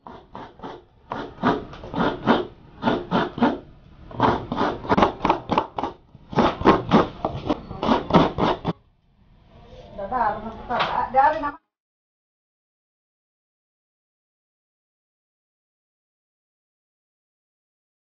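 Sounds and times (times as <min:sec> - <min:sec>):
coconut grating rasping strokes: 0:00.0 - 0:08.8.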